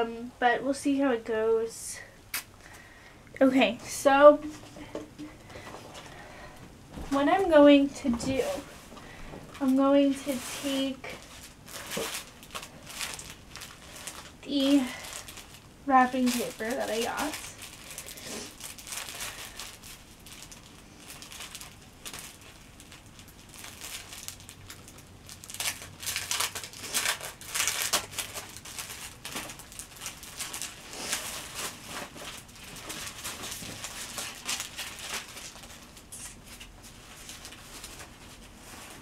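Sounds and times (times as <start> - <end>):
wrapping paper rustling and tearing: 7.1 - 8.9, 9.5 - 39.0.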